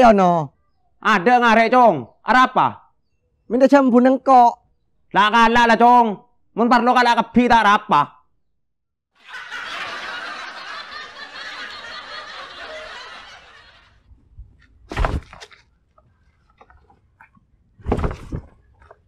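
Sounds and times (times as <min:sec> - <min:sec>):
crowd laughing: 0:09.2 - 0:14.1
loud thump: 0:14.9 - 0:15.4, 0:17.8 - 0:18.5.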